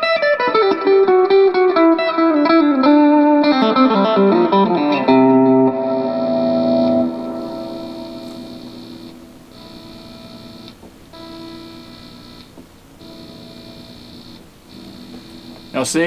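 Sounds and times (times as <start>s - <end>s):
electric guitar chord ringing: 0.0s - 16.0s
amplifier hum: 5.1s - 16.0s
high buzz: 5.6s - 16.0s.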